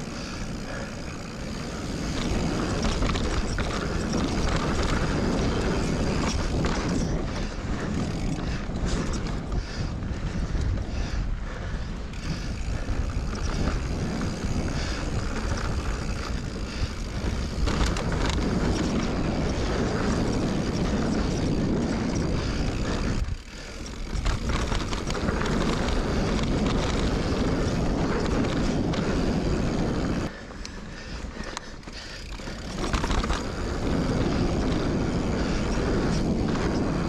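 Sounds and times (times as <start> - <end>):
bike rattling: 0.0 - 37.0
bike tyres rolling on dirt: 0.0 - 37.0
wind buffeting microphone: 0.0 - 37.0.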